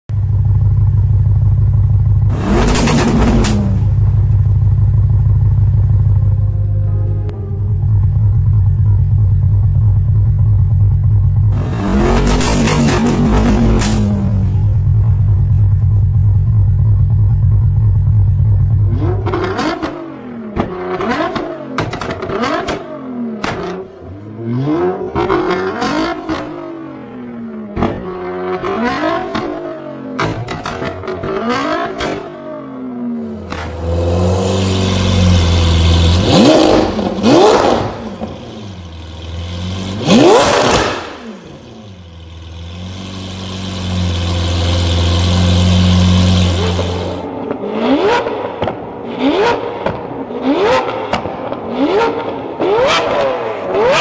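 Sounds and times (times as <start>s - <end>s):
car engine revving: 0.2s - 54.0s
low background music: 6.4s - 9.8s.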